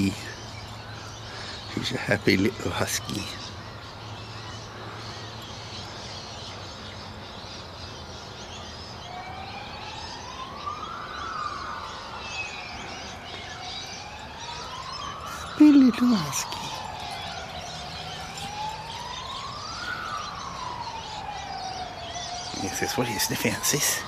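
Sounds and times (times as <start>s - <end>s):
birds chirping: 0.0s - 24.0s
siren wailing: 9.0s - 24.0s.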